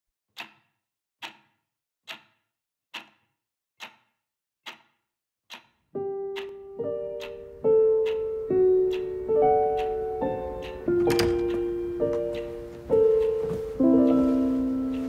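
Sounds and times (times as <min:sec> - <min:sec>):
clock ticking: 0:00.4 - 0:15.0
piano music: 0:06.0 - 0:15.0.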